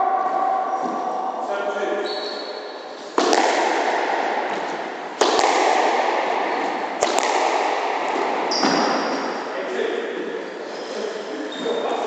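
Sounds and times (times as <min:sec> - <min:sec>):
squash ball cracking off rackets: 0:03.1 - 0:09.2.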